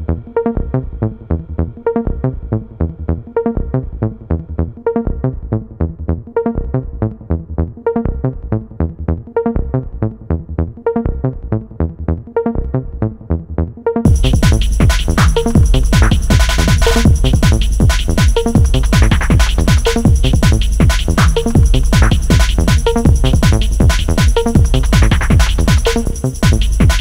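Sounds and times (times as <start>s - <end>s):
electronic music with steady beat: 13.9s - 27.0s.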